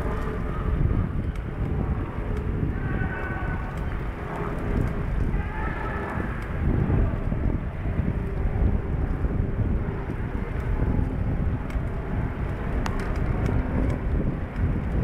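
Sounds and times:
faint street noise: 0.0 - 15.0
wind buffeting microphone: 0.0 - 15.0.

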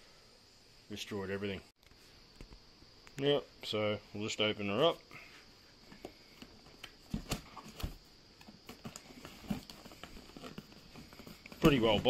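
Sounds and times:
hands handling cardboard box: 5.9 - 12.0.

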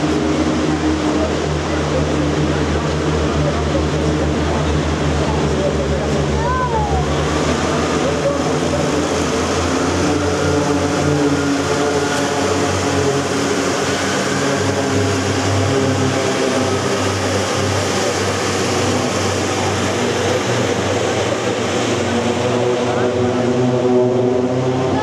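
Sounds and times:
propeller aircraft engines droning: 0.0 - 25.0.

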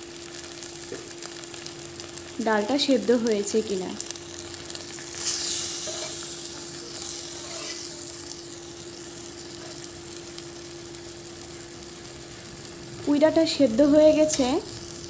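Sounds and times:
food bubbling and sizzling in pan: 0.0 - 15.0
spatula stirring: 4.8 - 9.9.

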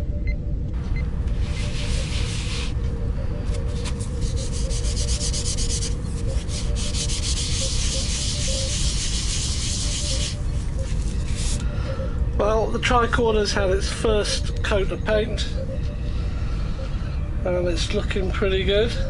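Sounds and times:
sanding pad rasping on paint: 1.4 - 2.8, 3.7 - 11.6.

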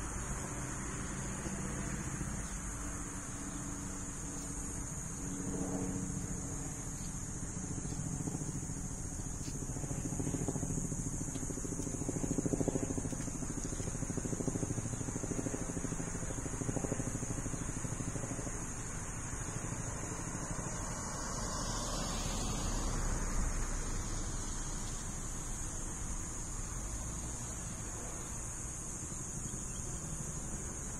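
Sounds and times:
high-pitched hiss: 17.4 - 30.9
car traffic on wet street: 20.9 - 25.3.

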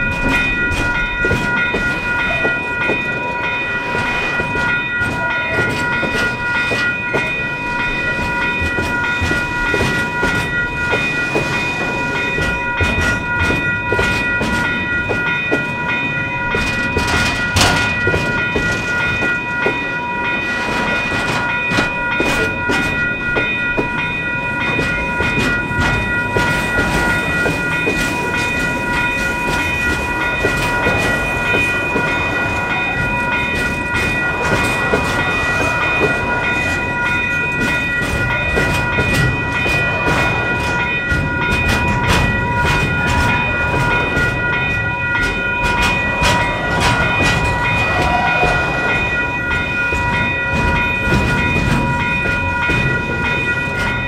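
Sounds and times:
train wheels clicking over rail joints: 0.0 - 54.0.

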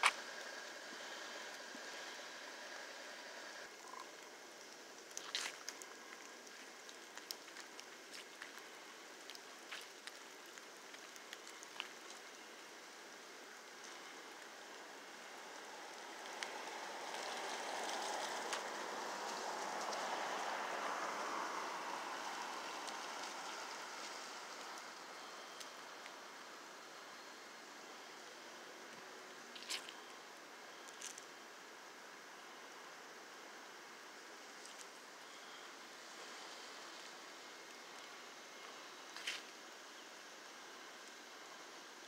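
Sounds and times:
light rain hiss: 0.0 - 42.0
raindrops ticking: 3.7 - 15.0.

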